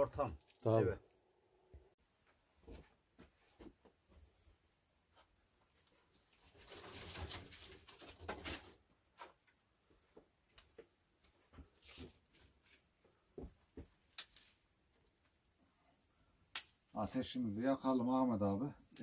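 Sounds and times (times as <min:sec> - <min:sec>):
twigs crackling and snapping: 0:00.0 - 0:01.2, 0:06.1 - 0:08.8, 0:11.7 - 0:12.9, 0:13.6 - 0:15.4, 0:16.4 - 0:17.4, 0:18.8 - 0:19.0
dry brushwood rustling: 0:10.7 - 0:15.9.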